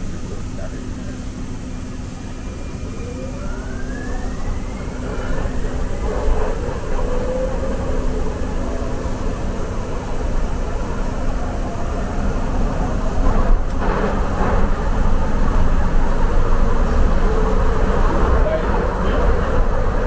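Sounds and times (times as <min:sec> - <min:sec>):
train low rumble: 0:00.0 - 0:20.0
train whine rising in pitch: 0:01.5 - 0:13.3.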